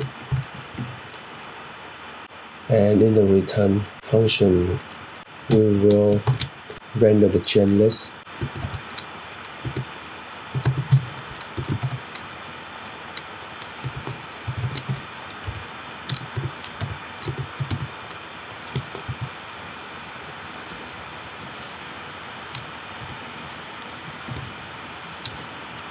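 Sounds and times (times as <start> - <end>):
keyboard typing: 0.0 - 1.2, 4.8 - 6.8, 7.6 - 19.4.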